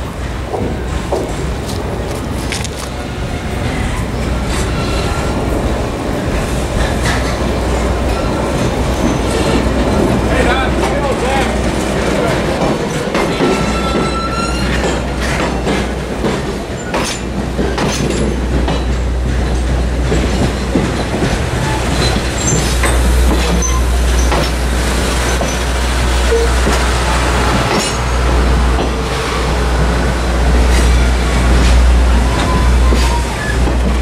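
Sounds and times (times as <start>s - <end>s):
train coaches rumbling past: 0.0s - 34.0s
wheels clacking over rail joints: 0.1s - 34.0s
faint flange squeals: 13.6s - 14.8s.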